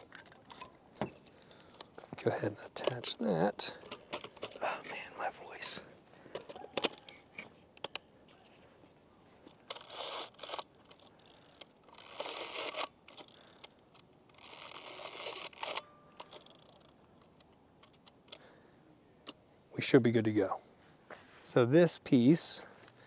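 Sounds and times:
camera film advance ratcheting: 9.7 - 17.0.

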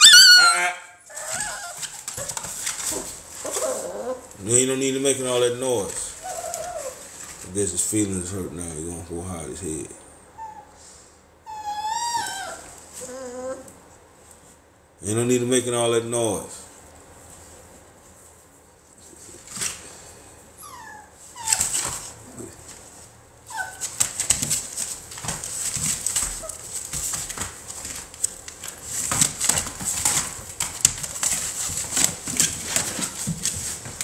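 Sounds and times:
puppies whimpering: 0.0 - 2.3, 6.1 - 7.1, 11.5 - 13.7
puppies rustling in wood shavings: 1.1 - 8.3, 21.1 - 34.0.

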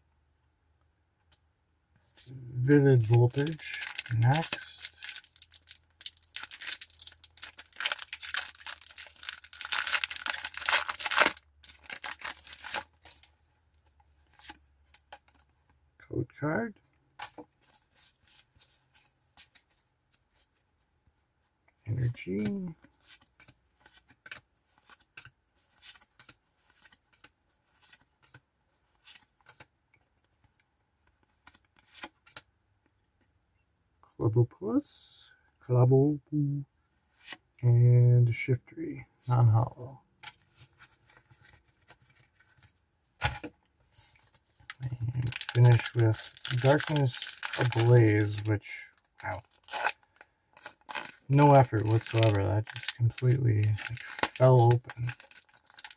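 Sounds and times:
foil wrapper tearing: 3.0 - 13.2, 44.8 - 48.5, 49.2 - 55.9
foil crinkling: 3.0 - 13.3, 44.8 - 55.9.

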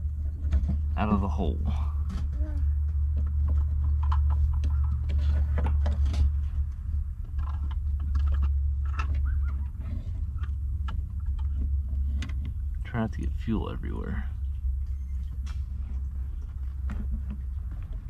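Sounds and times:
steady low rumble: 0.0 - 18.0
plastic and metal rattling: 2.1 - 12.6.

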